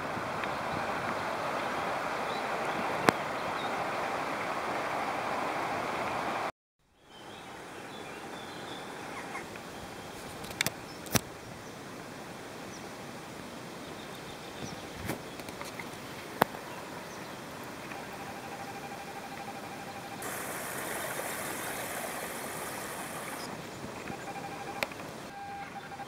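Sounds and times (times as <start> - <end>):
faint high bird chirps: 6.9 - 10.2, 21.5 - 26.0
river water lapping around canoe: 13.8 - 26.0.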